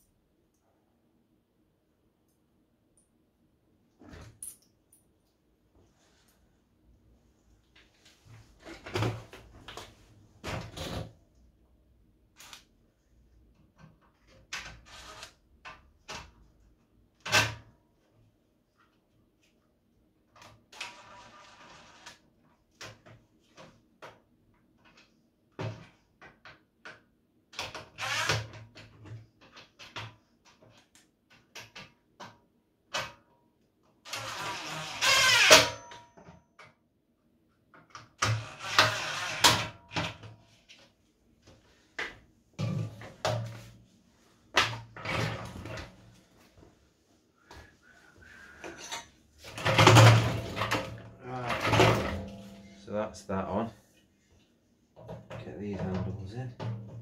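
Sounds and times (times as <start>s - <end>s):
plastic parts knocking and scraping: 48.6s - 52.8s.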